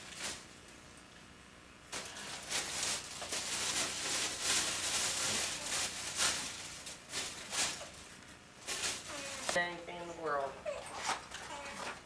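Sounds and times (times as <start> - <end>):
gift wrapping rustling: 1.9 - 9.6.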